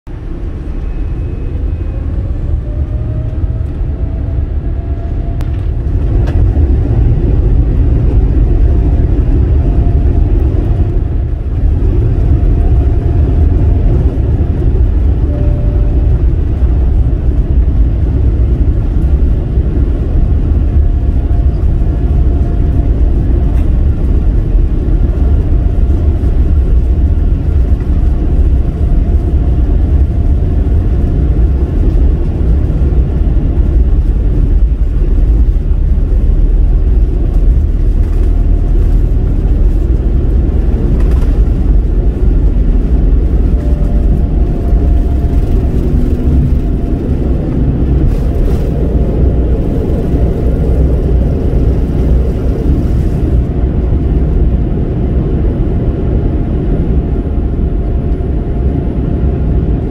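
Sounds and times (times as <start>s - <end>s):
jet engines rumbling inside cabin: 0.1s - 59.9s
faint rising whine: 39.4s - 55.6s.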